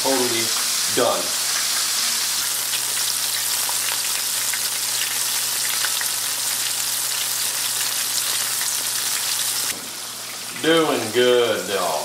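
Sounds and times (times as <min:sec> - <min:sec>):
deep-frying sizzle with crackles: 0:00.0 - 0:12.0.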